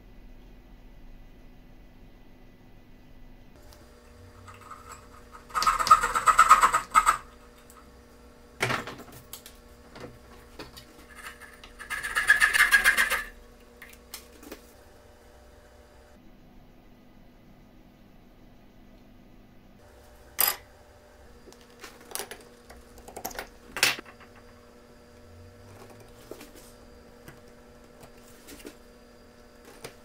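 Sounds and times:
hand tool rasping wood: 4.3 - 7.3, 10.9 - 13.3.

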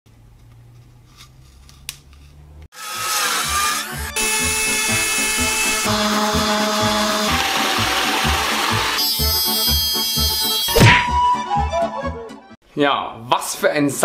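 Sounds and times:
power tool noise: 2.7 - 10.8.

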